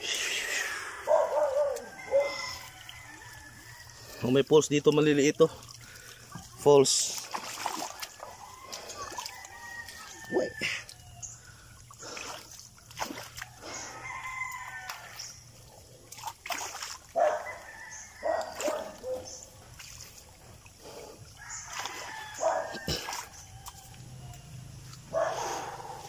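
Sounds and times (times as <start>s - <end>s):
roosters crowing: 0.0s - 4.4s, 7.8s - 11.5s, 13.4s - 15.6s, 17.1s - 19.4s, 21.2s - 26.0s
footsteps splashing on wet concrete: 0.6s - 26.0s.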